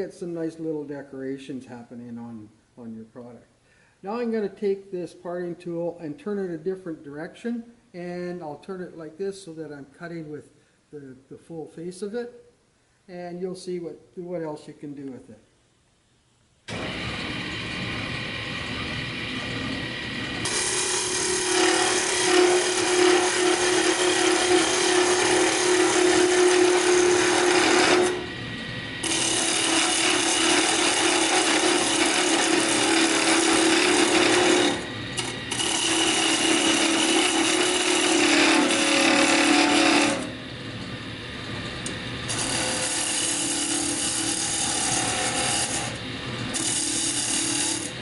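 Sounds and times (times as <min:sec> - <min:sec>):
tool scraping spinning wood: 0:16.7 - 0:48.0
wood lathe humming: 0:16.7 - 0:48.0.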